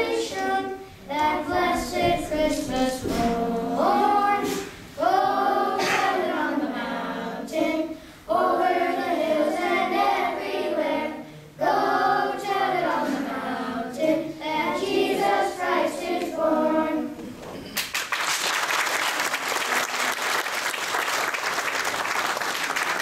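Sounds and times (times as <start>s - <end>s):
children's choir singing: 0.0s - 17.3s.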